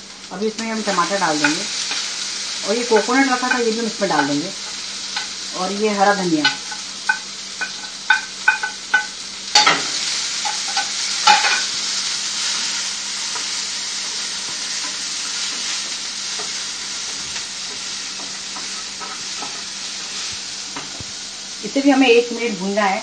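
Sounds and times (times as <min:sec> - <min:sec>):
food sizzling in a pan: 0:00.0 - 0:23.0
utensils tapping on a pan: 0:01.4 - 0:02.0, 0:03.1 - 0:05.4, 0:06.4 - 0:11.8, 0:13.3 - 0:19.7, 0:20.3 - 0:21.1.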